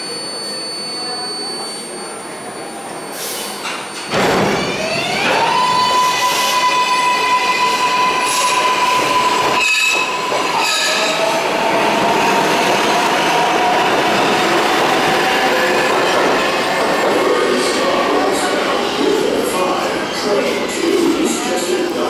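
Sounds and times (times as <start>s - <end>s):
train electric propulsion whine: 0.0s - 22.0s.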